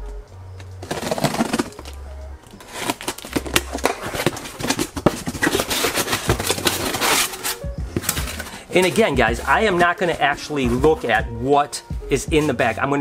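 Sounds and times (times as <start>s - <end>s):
cardboard box pulled open: 0.8s - 2.0s, 2.6s - 9.1s
packing tape tearing: 0.8s - 9.0s.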